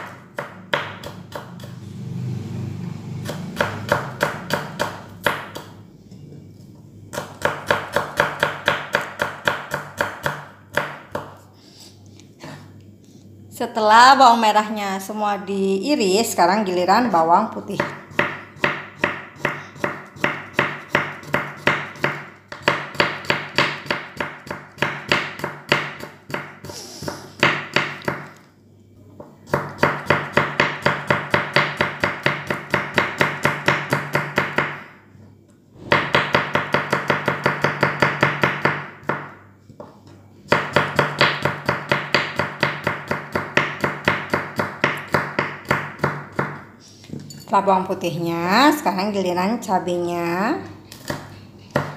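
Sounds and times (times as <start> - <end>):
knife chopping on wooden board: 0.0 - 1.7, 3.2 - 5.8, 7.1 - 11.4, 17.8 - 28.4, 29.5 - 34.8, 35.8 - 39.9, 40.5 - 46.6, 50.9 - 51.9.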